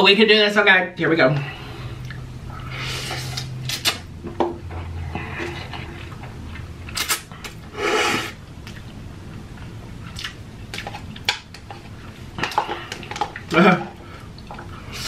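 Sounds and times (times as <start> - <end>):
person slurping noodles: 7.7 - 8.4
chewing: 8.6 - 13.6.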